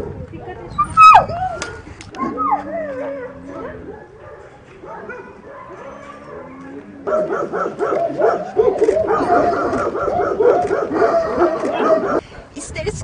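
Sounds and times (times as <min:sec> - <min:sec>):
many dogs barking: 0:00.0 - 0:12.2
dog whining: 0:00.7 - 0:01.6, 0:02.2 - 0:03.8.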